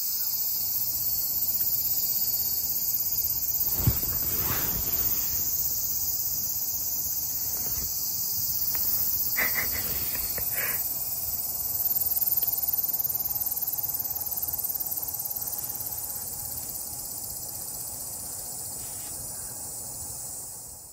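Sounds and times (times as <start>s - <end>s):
insects chorus: 0.0s - 20.9s
short faint sounds: 3.5s - 6.1s.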